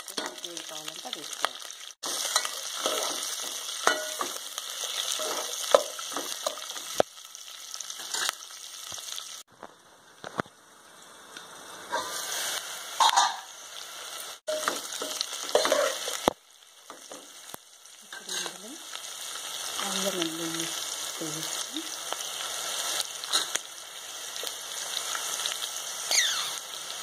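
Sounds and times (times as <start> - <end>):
vegetables sizzling in oil: 0.0 - 27.0
ladle clinking and scraping pot: 2.1 - 4.4, 13.0 - 13.5, 14.5 - 16.3.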